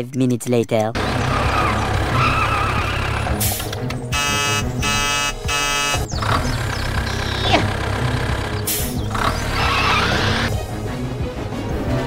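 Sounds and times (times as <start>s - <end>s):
tractor engine rumbling: 0.9s - 10.6s
short horn blasts: 4.1s - 6.1s.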